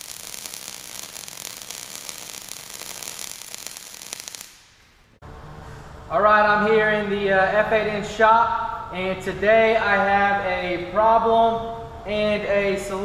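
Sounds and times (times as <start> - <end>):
arc welding crackling sizzle: 0.0 - 5.2.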